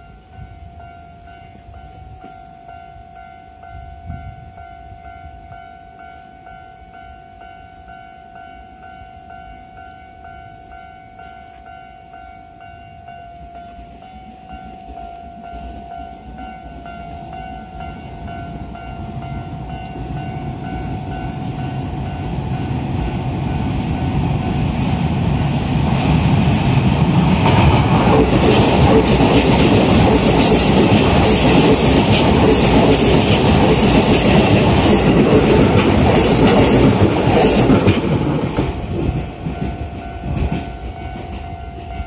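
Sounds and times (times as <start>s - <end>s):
electric train rumbling: 0.0s - 42.0s.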